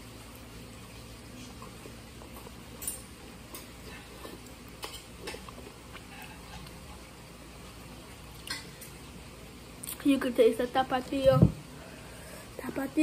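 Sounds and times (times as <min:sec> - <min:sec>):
low steady hum: 0:00.0 - 0:13.0
noodles slurped and chewed: 0:00.3 - 0:08.6.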